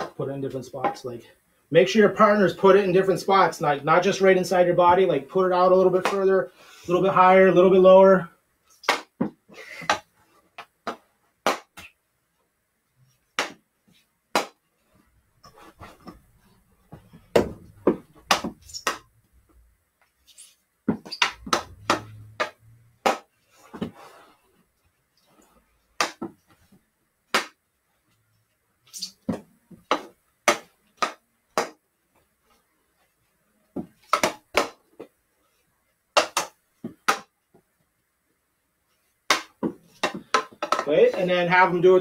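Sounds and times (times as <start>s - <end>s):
hockey stick tapping ball: 17.3s - 19.0s, 20.9s - 23.9s, 26.0s - 26.4s, 29.2s - 31.8s, 33.8s - 35.1s, 36.2s - 37.4s, 39.3s - 41.3s.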